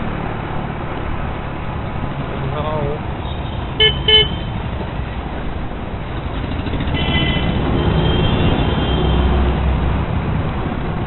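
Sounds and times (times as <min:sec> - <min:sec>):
road traffic rumble: 0:00.0 - 0:11.0
vehicle horn honks: 0:03.3 - 0:04.5, 0:07.0 - 0:09.2.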